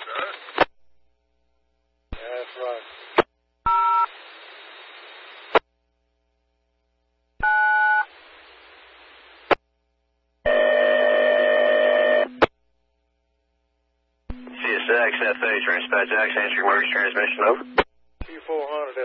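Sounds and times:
radio squelch hiss: 0.0s - 0.7s, 2.2s - 3.3s, 4.0s - 5.6s, 8.0s - 9.6s, 14.4s - 19.0s
radio transmission click: 14.3s - 18.4s.

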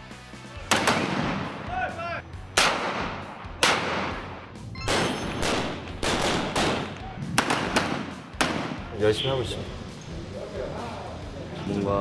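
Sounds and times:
rifle shots with echoing tail: 0.7s - 1.6s, 2.6s - 8.9s.

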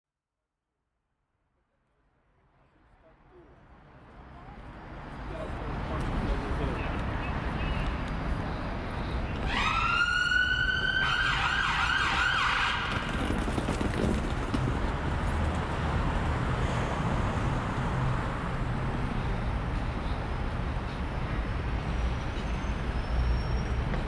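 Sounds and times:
city road traffic: 1.6s - 24.0s
emergency vehicle siren: 9.0s - 13.7s.

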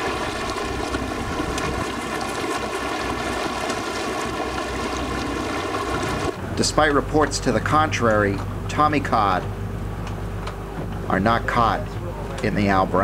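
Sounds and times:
water rushing: 0.0s - 9.8s
boat engine running: 0.0s - 13.0s
wind: 0.0s - 13.0s.

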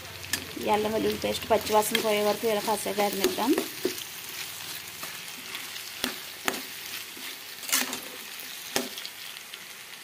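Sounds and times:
vegetables sizzling in oil: 0.0s - 10.0s.

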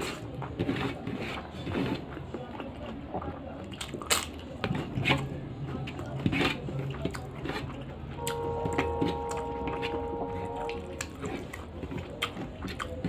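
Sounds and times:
chewing with lip smacks: 0.0s - 8.8s, 10.6s - 13.0s
steady humming tone: 8.2s - 11.0s.

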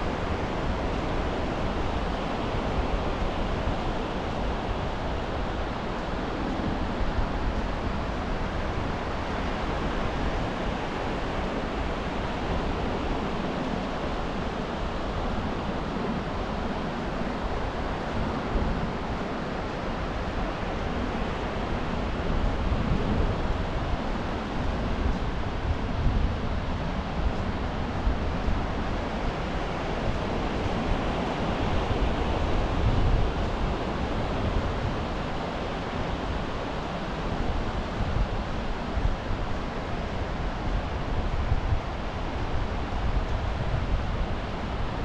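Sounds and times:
wind rumbling on microphone: 0.0s - 45.0s.

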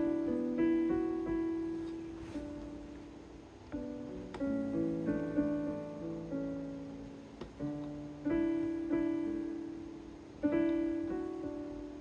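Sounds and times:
keyboard piano chords: 0.0s - 12.0s.

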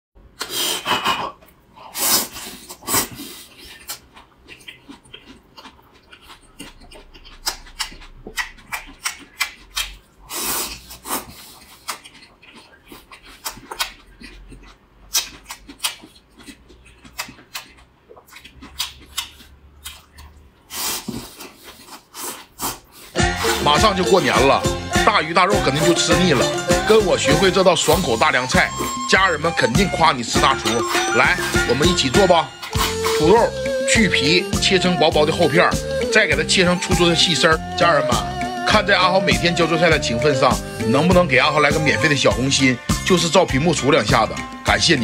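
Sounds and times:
wet chewing and slurping: 0.4s - 25.0s, 25.7s - 36.8s
mouth clicks: 3.7s - 20.4s, 28.3s - 34.7s.

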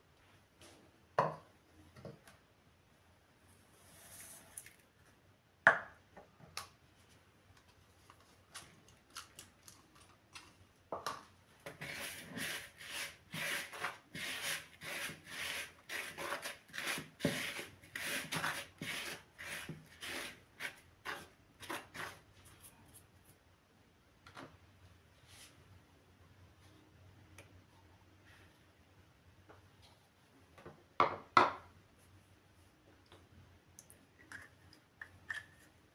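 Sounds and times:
hand mixing flour in plastic bowl: 11.7s - 23.0s.

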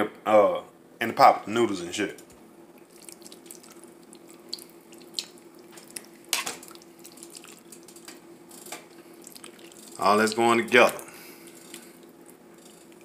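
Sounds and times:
faint steady hum: 0.0s - 13.0s
wet splashing in broth: 2.7s - 8.2s, 8.8s - 10.0s.

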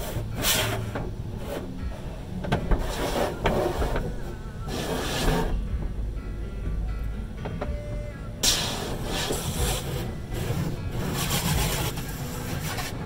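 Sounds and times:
water spray hissing on windshield: 0.0s - 1.6s, 8.4s - 13.0s
car wash machinery rumble: 0.0s - 13.0s.

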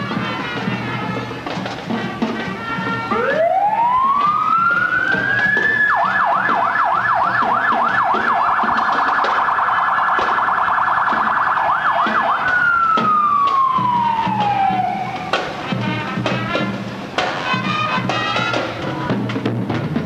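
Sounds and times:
electronic siren: 3.1s - 15.4s.

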